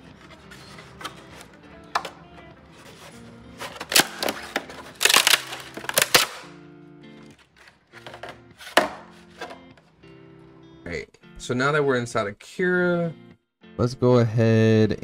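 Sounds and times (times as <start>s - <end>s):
background music: 0.0s - 15.0s
plastic cracking and snapping: 3.7s - 6.5s.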